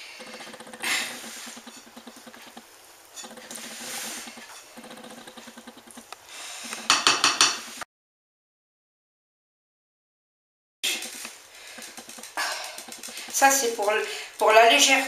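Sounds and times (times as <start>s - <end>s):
hand mixing dough in glass bowl: 0.0s - 6.1s, 10.9s - 15.0s.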